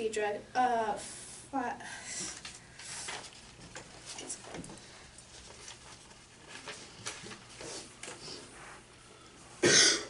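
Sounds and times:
paper rustling: 2.3s - 8.5s.

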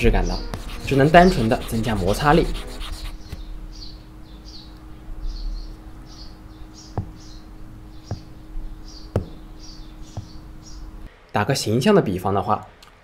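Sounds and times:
stylus rubbing on glass screen: 0.3s - 3.4s
stylus tapping on screen: 6.9s - 7.2s, 8.1s - 8.3s, 9.1s - 9.4s.

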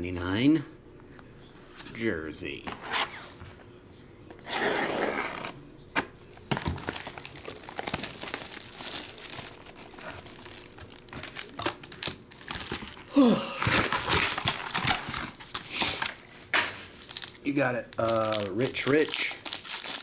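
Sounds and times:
cardboard box rustling: 6.4s - 16.1s
plastic wrap crinkling and tearing: 6.4s - 20.0s.

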